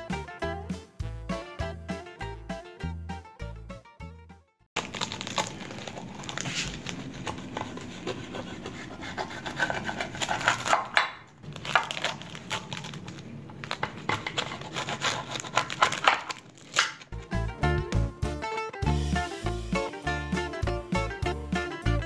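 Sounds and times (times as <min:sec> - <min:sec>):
knife cutting crisp pastry: 0:04.9 - 0:17.2.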